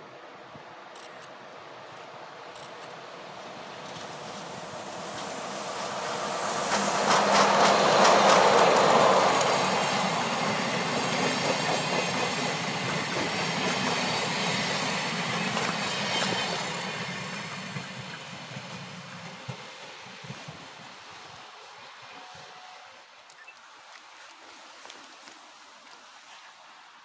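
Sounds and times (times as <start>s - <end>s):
diesel locomotive engine: 1.5s - 23.0s
train wheels clicking over rail joints: 5.0s - 16.6s.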